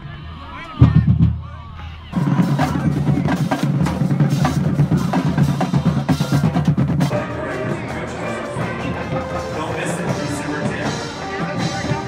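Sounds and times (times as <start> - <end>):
steady tones: 2.1 - 12.0
snare and bass drums: 2.2 - 12.0.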